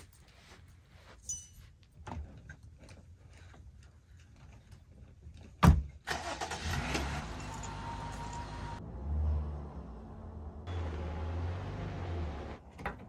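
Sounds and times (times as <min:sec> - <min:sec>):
vehicle engine rumbling: 0:06.1 - 0:13.0.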